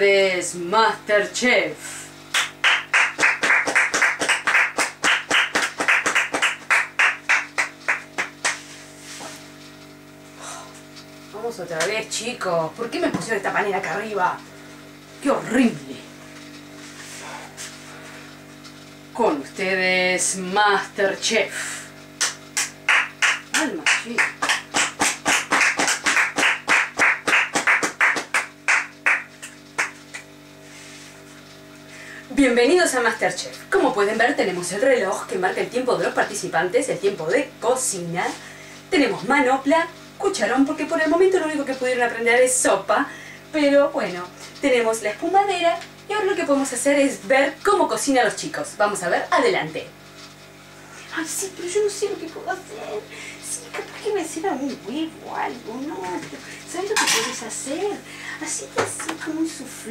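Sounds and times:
rhythmic hand clapping: 2.3 - 8.7, 22.2 - 30.3.

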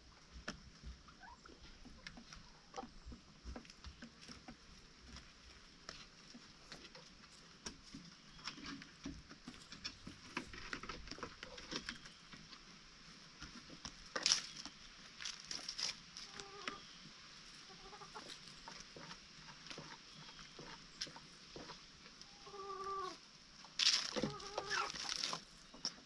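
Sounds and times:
chickens moving with small taps: 0.0 - 26.0
chickens clucking softly: 0.8 - 12.6, 16.2 - 23.2, 24.1 - 26.0.

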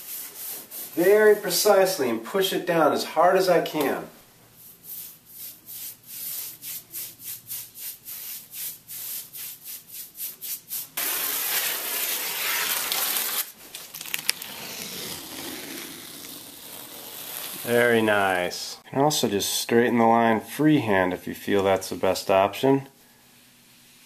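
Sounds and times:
paintbrush swishing over tape: 0.0 - 1.6, 4.6 - 13.6, 14.3 - 18.1
tape ripping off: 11.0 - 17.8
tape rustling: 11.0 - 17.8.

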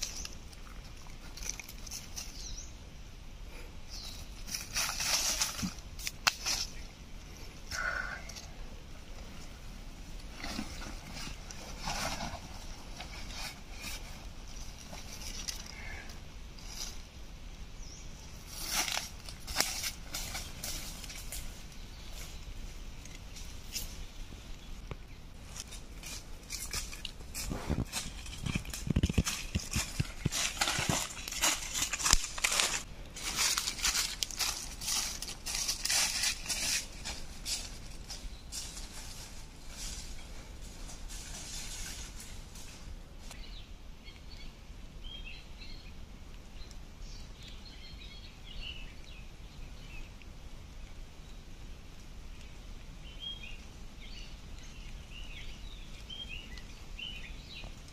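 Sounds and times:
footsteps in dry leaves: 4.0 - 6.8, 10.2 - 15.5, 18.4 - 22.4, 25.4 - 43.4.

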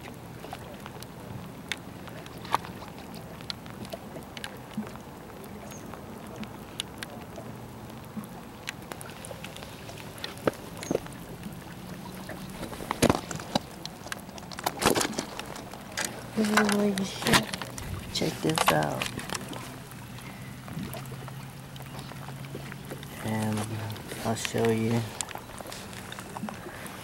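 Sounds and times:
water sounds: 0.0 - 27.0
taps and scrapes on rocks: 12.5 - 19.7.

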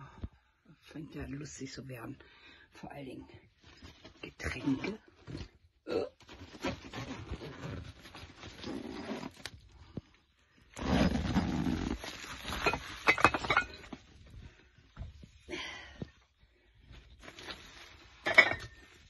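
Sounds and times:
cooler bag rustling and scraping: 6.3 - 9.6, 10.8 - 14.0.

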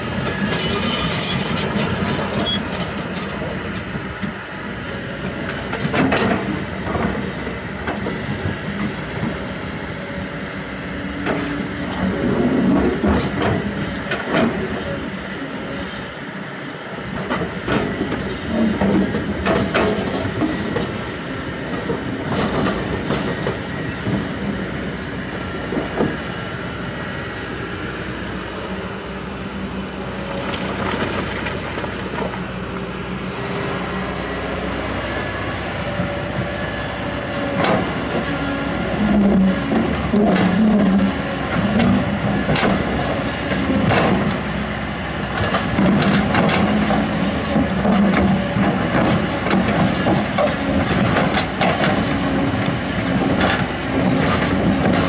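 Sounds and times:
diesel engine under load: 0.0 - 55.0.

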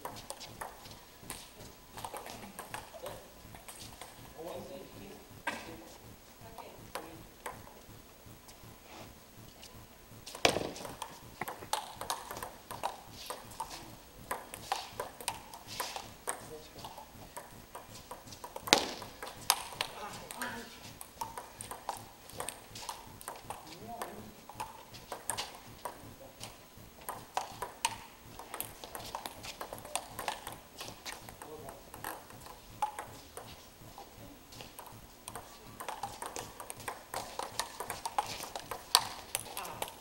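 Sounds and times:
table tennis ball clicks: 6.9 - 7.7, 10.4 - 33.5, 34.6 - 40.0.

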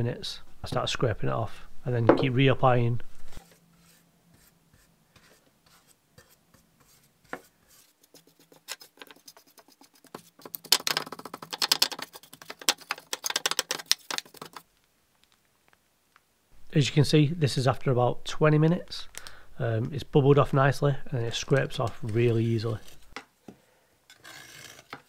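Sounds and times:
paintbrush scrubbing: 3.4 - 14.6.

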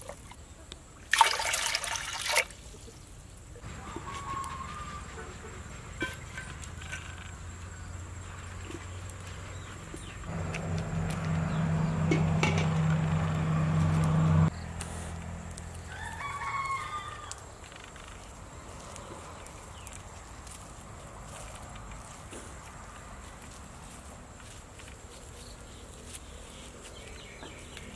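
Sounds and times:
rooster crowing: 3.7 - 5.4, 15.8 - 17.5
steady low hum: 10.0 - 15.6.

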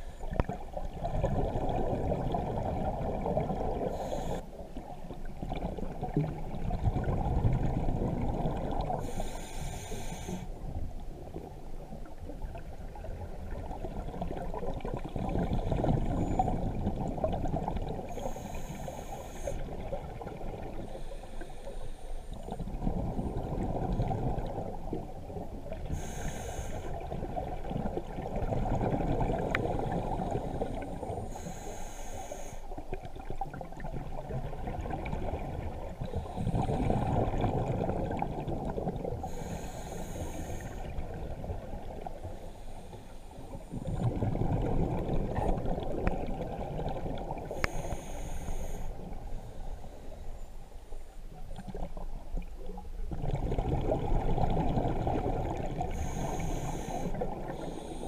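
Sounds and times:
exhaled bubbles rumbling: 0.0 - 9.3, 10.6 - 18.4, 19.6 - 21.1, 22.4 - 26.1, 26.9 - 31.3, 32.8 - 39.5, 40.6 - 42.4, 43.4 - 47.6, 51.3 - 57.8
regulator inhale hiss: 3.8 - 4.6, 8.9 - 10.6, 18.1 - 19.8, 20.8 - 22.5, 25.8 - 27.1, 30.4 - 32.9, 36.0 - 37.2, 39.2 - 41.1, 42.2 - 43.7, 47.4 - 51.0, 55.8 - 58.0.

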